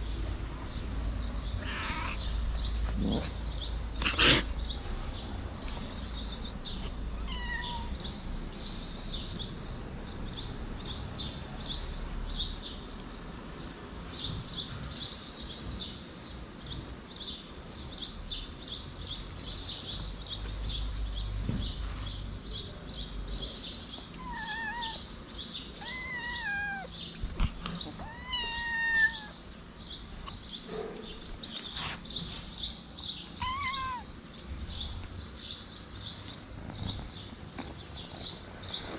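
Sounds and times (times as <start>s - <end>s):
birds chirping: 0.0s - 38.9s
kitten meowing: 7.2s - 8.0s, 24.1s - 25.1s, 25.7s - 29.4s, 33.4s - 34.2s.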